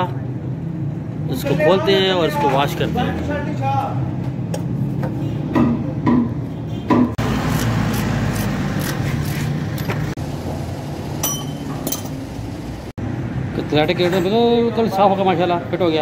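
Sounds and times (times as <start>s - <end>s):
tools knocking on metal: 4.5s - 7.2s.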